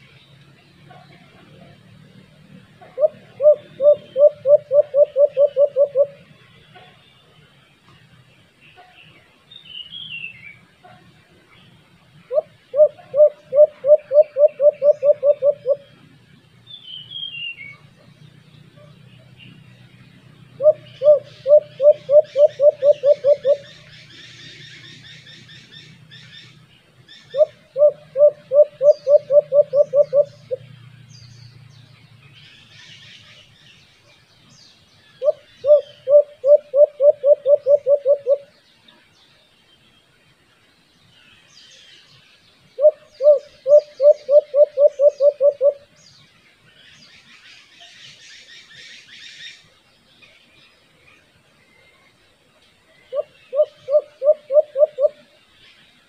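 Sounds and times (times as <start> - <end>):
small birds chirping: 0.0 - 56.0
dove hooting: 2.8 - 6.3, 12.3 - 16.0, 20.6 - 24.4, 27.3 - 30.6, 35.2 - 38.5, 42.8 - 45.9, 53.1 - 55.2.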